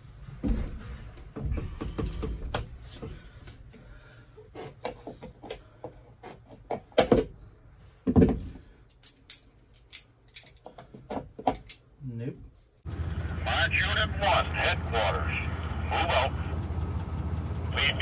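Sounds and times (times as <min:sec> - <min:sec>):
metal tools clinking: 0:09.0 - 0:10.6, 0:11.5 - 0:11.9.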